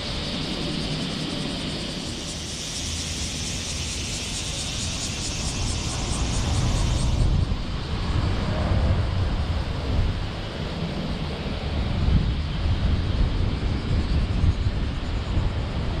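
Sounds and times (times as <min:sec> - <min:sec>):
high hiss: 0:00.0 - 0:08.0
road and tyre noise: 0:02.2 - 0:16.0.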